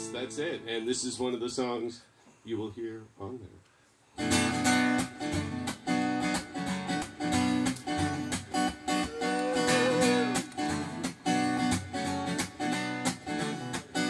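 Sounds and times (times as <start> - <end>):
acoustic guitar strumming: 4.2 - 14.0
wavering held note: 9.1 - 10.4.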